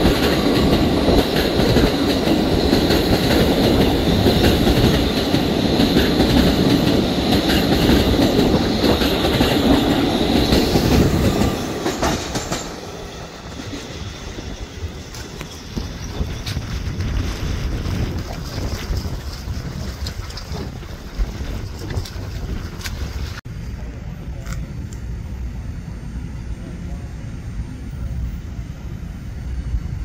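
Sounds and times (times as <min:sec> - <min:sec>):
high steady whine: 0:00.0 - 0:30.0
subway train rumbling on rails: 0:00.0 - 0:30.0
wheels clacking: 0:15.1 - 0:23.4.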